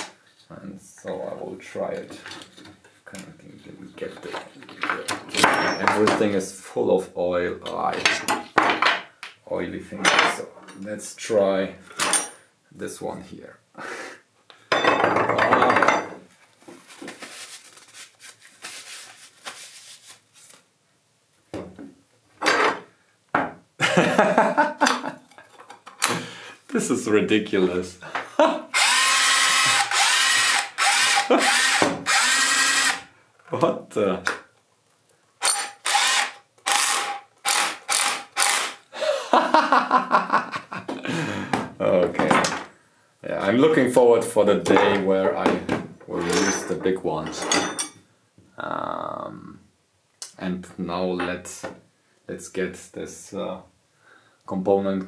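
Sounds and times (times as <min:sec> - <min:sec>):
drill bits clinking on wooden table: 0:05.3 - 0:06.2.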